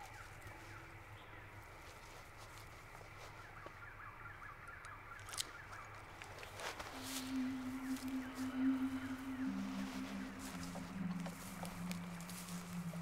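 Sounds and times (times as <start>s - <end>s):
rustle in grass: 0.0s - 4.1s, 5.4s - 13.0s
low hum: 0.0s - 13.0s
bird chirps: 6.8s - 13.0s.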